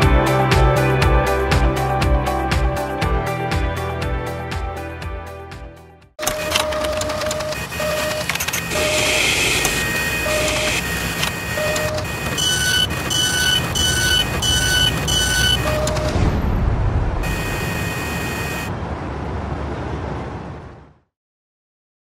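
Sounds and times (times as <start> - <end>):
higher two-tone beeps: 6.2 - 16.2, 17.2 - 18.7
mechanical rumble with clanks: 6.2 - 17.2.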